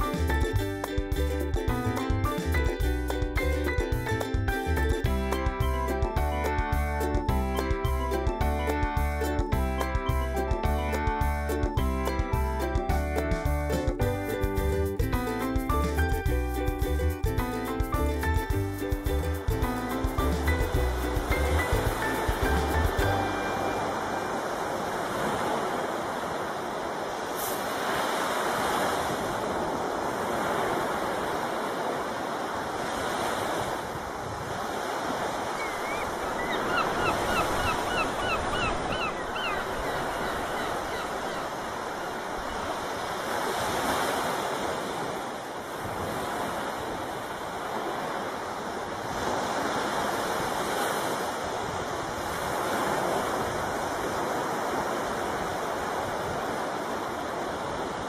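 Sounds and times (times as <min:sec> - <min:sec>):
water rushing along hull: 0:00.0 - 0:58.0
wind on microphone: 0:24.1 - 0:58.0.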